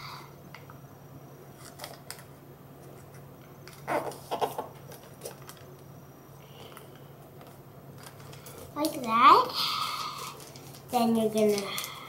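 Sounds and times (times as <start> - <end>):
paper rustling and crinkling: 10.3 - 12.0.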